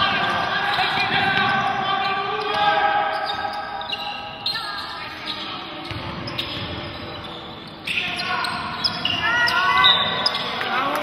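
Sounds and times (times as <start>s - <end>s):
basketball bouncing on hardwood: 5.9s - 6.7s.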